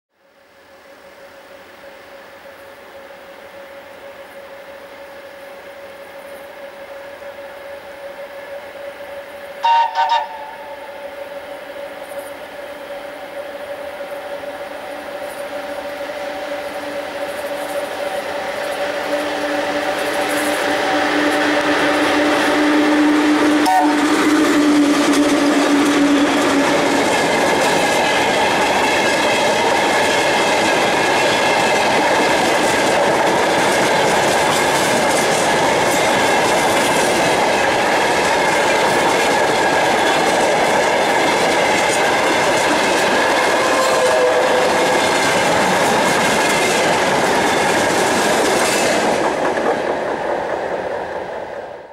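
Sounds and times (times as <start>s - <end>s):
locomotive steady tone: 0.1s - 51.9s
train wheels clattering on rails: 15.1s - 51.9s.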